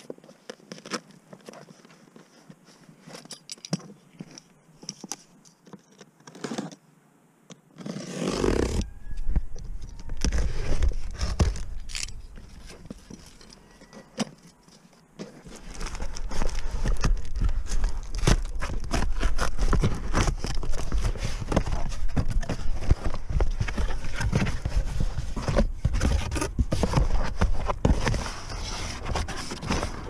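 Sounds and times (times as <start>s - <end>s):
rustling in a fabric bag: 7.8s - 30.0s.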